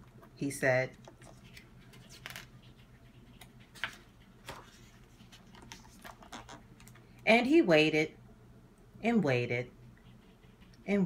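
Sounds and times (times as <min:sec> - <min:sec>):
faint steady hum: 0:00.0 - 0:11.0
book page turning: 0:01.0 - 0:02.8, 0:03.4 - 0:06.6.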